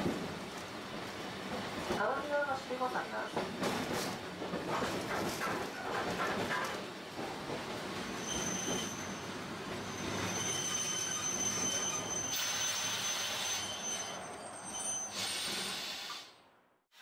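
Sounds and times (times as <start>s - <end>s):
tram rumbling: 0.0s - 16.7s
tram wheels squealing: 8.0s - 16.3s.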